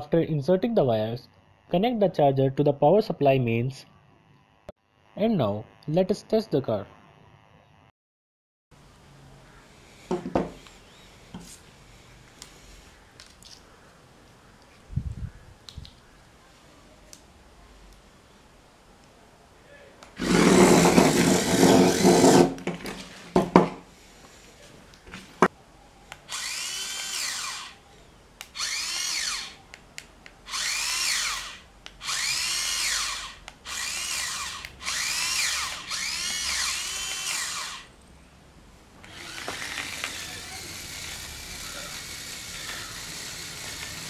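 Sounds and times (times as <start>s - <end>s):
small gear motors whining: 9.6s - 13.0s, 26.1s - 27.8s, 28.4s - 29.6s, 30.4s - 37.9s, 39.0s - 44.0s.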